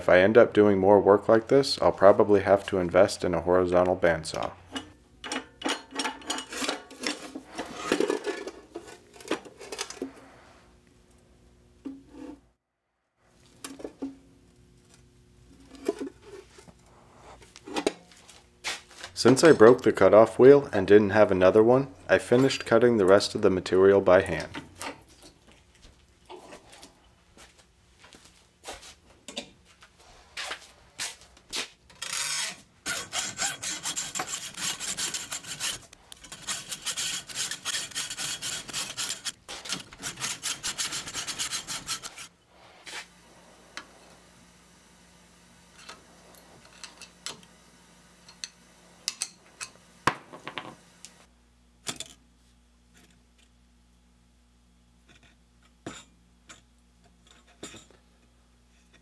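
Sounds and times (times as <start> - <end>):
hacksaw cutting steel: 32.0 - 42.4.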